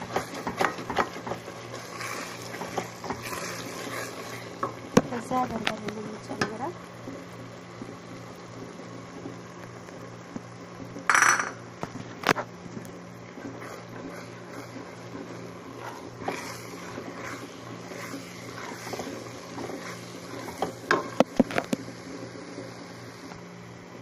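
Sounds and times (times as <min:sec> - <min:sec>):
wooden spoon scraping metal pot: 0:00.0 - 0:04.5, 0:13.4 - 0:21.7.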